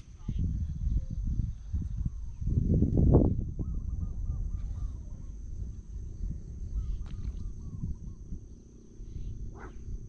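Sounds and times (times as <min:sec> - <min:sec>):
low rumble: 0:00.0 - 0:10.0
insects trilling: 0:03.3 - 0:10.0.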